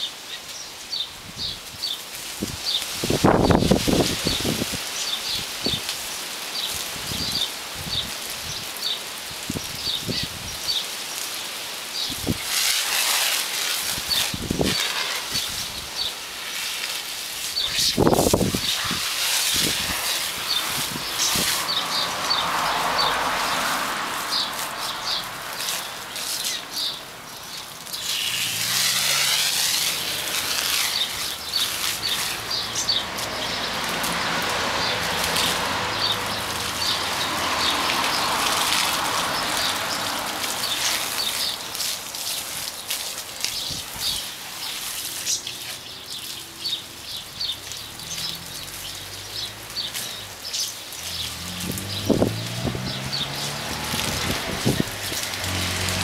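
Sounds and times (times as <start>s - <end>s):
water hissing from hose nozzle: 0.0s - 56.0s
birds chirping: 17.4s - 56.0s.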